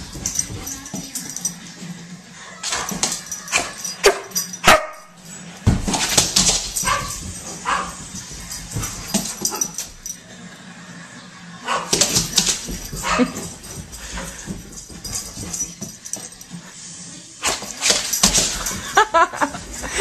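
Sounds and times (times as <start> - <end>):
dog barking: 4.0 - 5.1, 6.8 - 8.0, 13.0 - 13.5.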